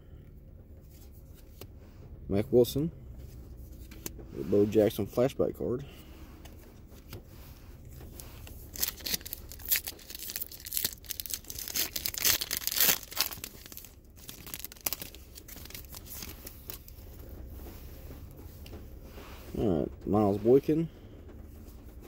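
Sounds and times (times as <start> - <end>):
wrapper tearing and crinkling: 8.6 - 17.0.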